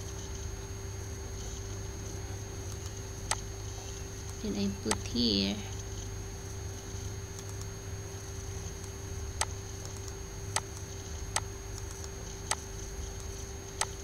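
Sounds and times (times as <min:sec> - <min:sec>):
steady low hum: 0:00.0 - 0:14.0
computer mouse clicks: 0:07.4 - 0:07.7, 0:08.8 - 0:14.0.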